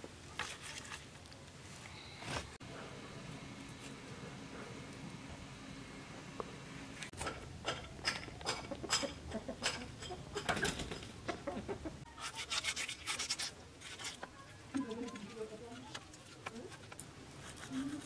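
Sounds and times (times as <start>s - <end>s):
knife scraping fish scales: 12.2s - 14.3s.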